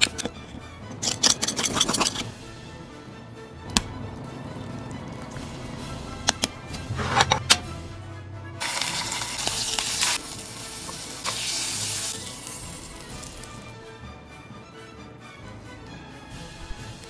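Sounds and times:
scallop sizzling in frying pan: 8.6 - 13.6.

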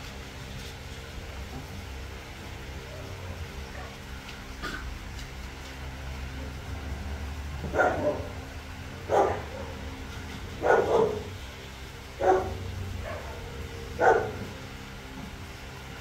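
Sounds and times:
puppy yapping barks: 7.7 - 8.3, 9.0 - 9.8, 10.6 - 11.3, 12.2 - 14.6.

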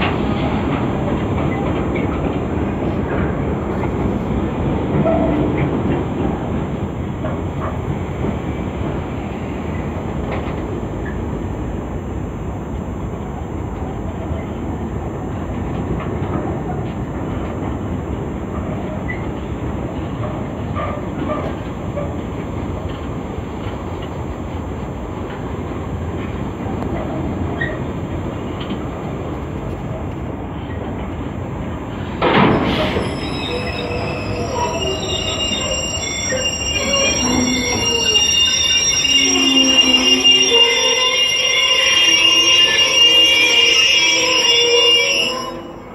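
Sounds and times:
freight train wheels rumbling: 0.0 - 45.9
high-pitched wheel squeals: 32.3 - 45.9.

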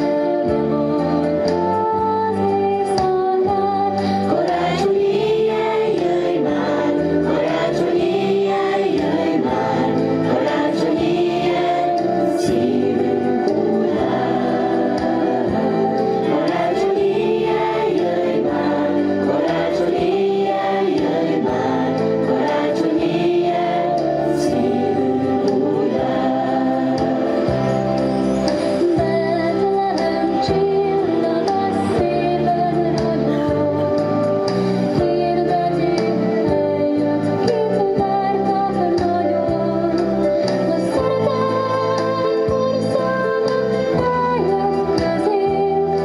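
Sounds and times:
choir singing: 4.3 - 34.3
instruments accompanying: 4.3 - 36.0.

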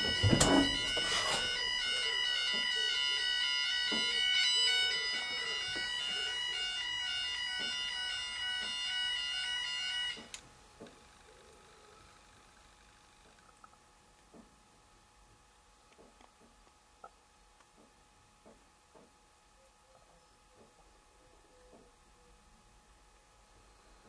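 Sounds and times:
level crossing alarm tone: 0.0 - 10.4.

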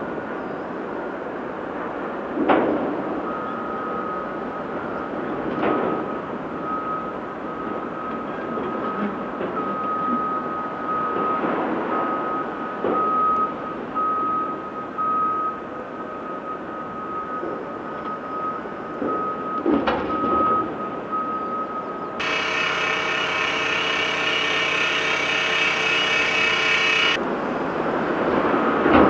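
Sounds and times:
reversing alarm beeping: 3.2 - 27.2
diesel engines running: 22.0 - 28.0.

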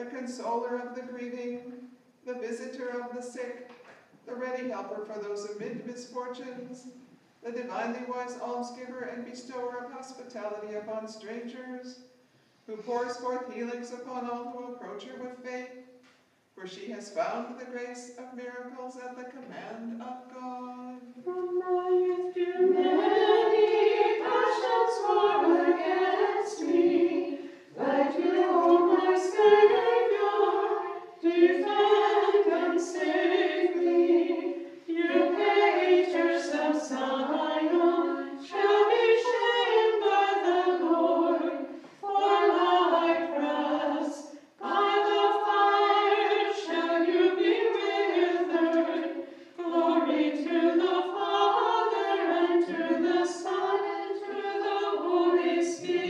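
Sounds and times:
a cappella group chant: 21.2 - 56.0.

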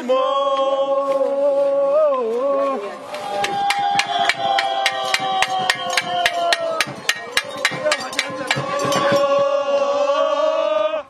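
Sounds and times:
voices chanting held notes: 3.0 - 11.0
quick even knocking: 3.4 - 9.5.

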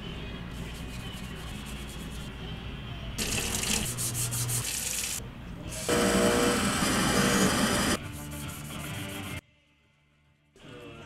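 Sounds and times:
soft background music: 0.0 - 5.9.

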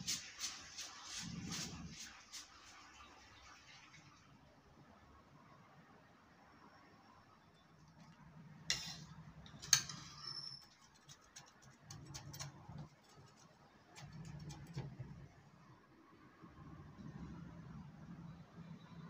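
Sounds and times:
faint low hum: 2.9 - 19.0
knife crackling through crust: 8.7 - 15.0.

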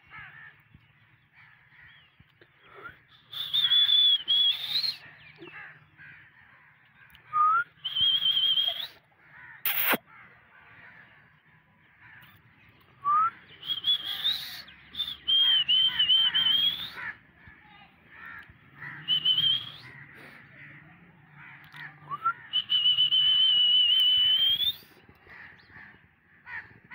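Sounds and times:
high warbling whistle: 9.7 - 10.0
short rising chirps: 9.7 - 10.0.

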